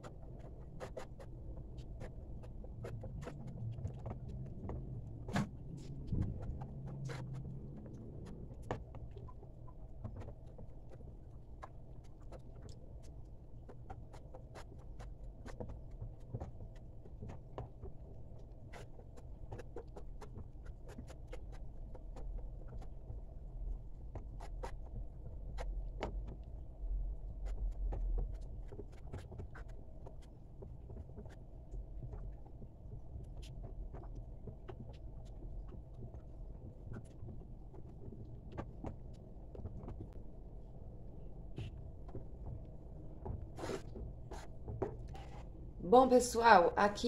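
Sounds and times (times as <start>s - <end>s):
steady low rumble: 0.0s - 10.0s.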